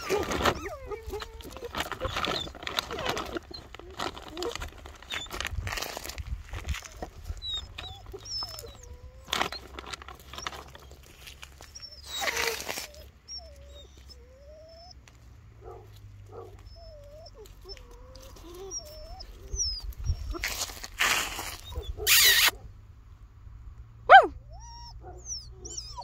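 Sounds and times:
rustling and scuffling: 0:00.0 - 0:13.1, 0:15.0 - 0:22.2
puppies whining and whimpering: 0:00.0 - 0:15.0, 0:16.4 - 0:20.7, 0:21.5 - 0:22.5, 0:24.1 - 0:26.0.

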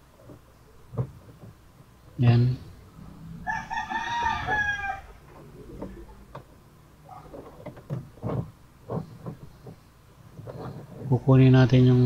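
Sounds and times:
rooster crowing: 0:03.0 - 0:06.2
light clicks and knocks: 0:07.2 - 0:11.2.

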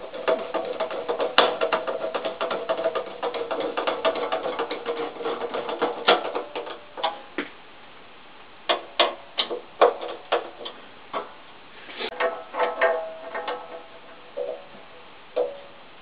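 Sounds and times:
sparse plucked music notes: 0:12.1 - 0:15.9.

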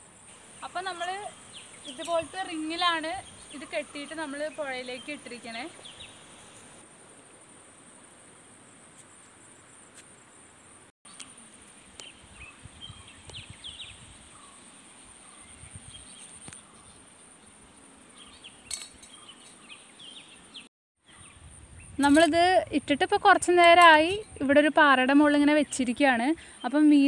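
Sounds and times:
insects trilling: 0:00.0 - 0:27.0
faint bird chirps: 0:12.0 - 0:17.1.

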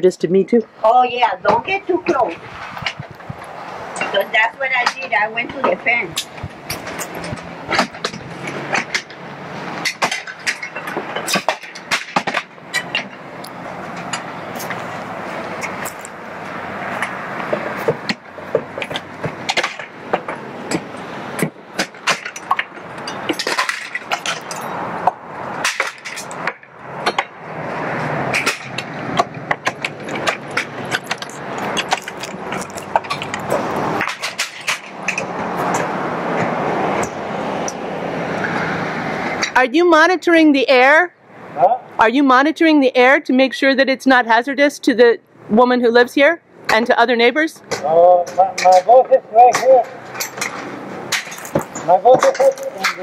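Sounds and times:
steady background noise: 0:00.0 - 0:53.0
shingles cracking and clattering: 0:09.8 - 0:13.2, 0:17.0 - 0:24.8, 0:25.6 - 0:27.4, 0:28.3 - 0:35.8, 0:50.0 - 0:53.0.

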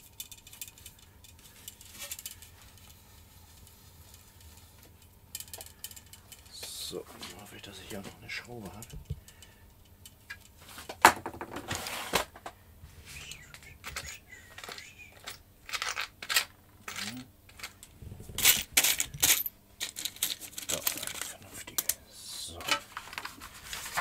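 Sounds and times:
screws clinking and rattling: 0:00.0 - 0:02.5, 0:13.5 - 0:21.3.

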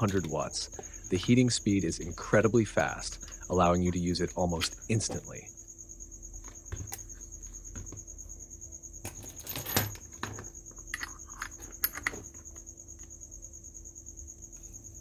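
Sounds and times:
plastic housing clicks and knocks: 0:10.2 - 0:12.6.

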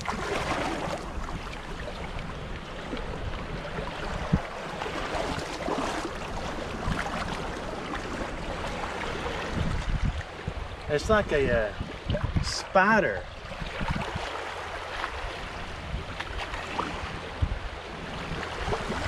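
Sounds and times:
seawater sloshing around net: 0:00.0 - 0:10.4
wind on microphone: 0:00.0 - 0:19.0.

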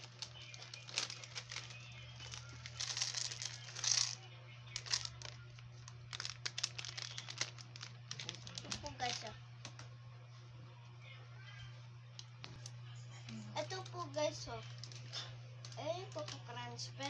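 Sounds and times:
packaging crinkling: 0:00.0 - 0:09.3.

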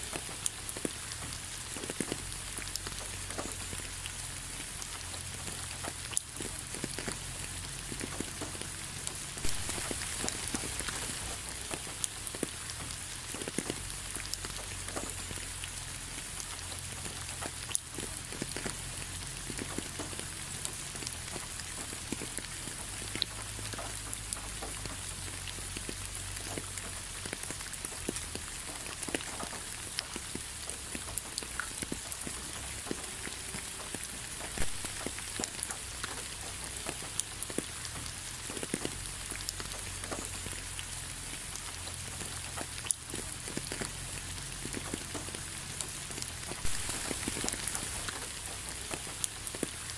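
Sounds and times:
rain hissing: 0:00.0 - 0:49.9
raindrops ticking: 0:00.0 - 0:49.9.

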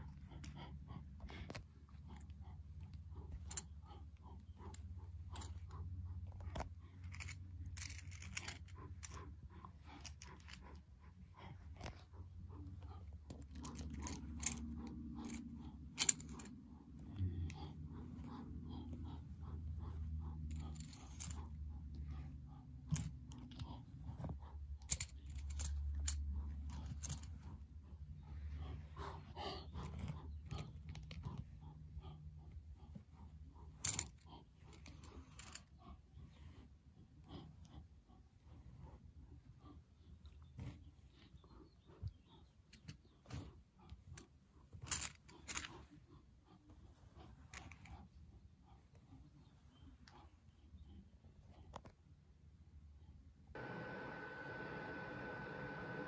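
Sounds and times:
low steady hum: 0:00.0 - 0:56.0
plastic toys clicking together: 0:07.0 - 0:09.2, 0:13.3 - 0:16.5, 0:44.8 - 0:45.8.

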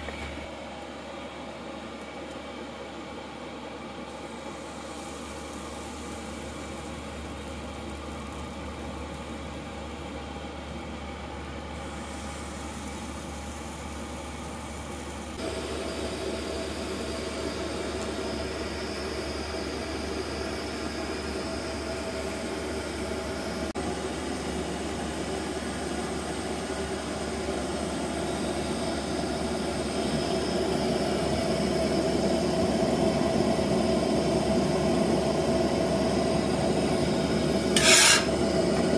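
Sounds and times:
pancakes sizzling on griddle: 0:04.1 - 0:23.4, 0:35.2 - 0:38.8.

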